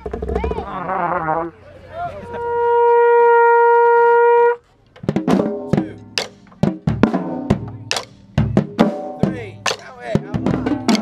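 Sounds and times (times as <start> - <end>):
brass instrument long note: 2.2 - 4.6
marching drums playing: 5.0 - 11.0.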